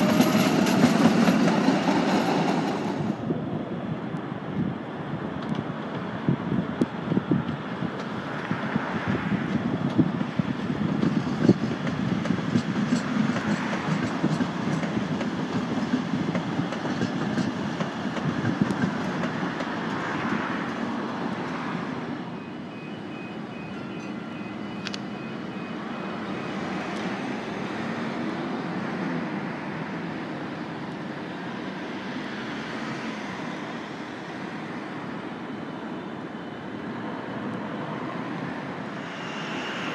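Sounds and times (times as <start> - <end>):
train wheels rumbling on rail: 0.0 - 22.4, 36.7 - 39.9.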